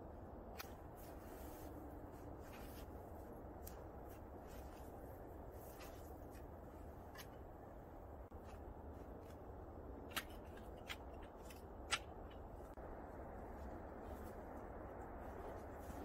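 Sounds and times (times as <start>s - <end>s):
low background noise: 0.0s - 16.0s
camp gear clicking and clinking: 8.3s - 12.8s.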